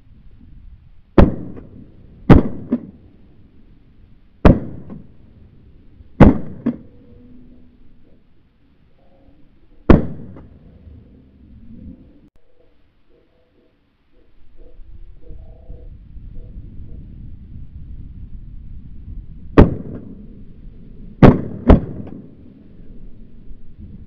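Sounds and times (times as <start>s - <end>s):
shotgun shots echoing: 1.2s - 3.0s, 4.4s - 5.1s, 6.2s - 6.9s, 9.9s - 10.6s, 19.6s - 20.2s, 21.2s - 22.4s.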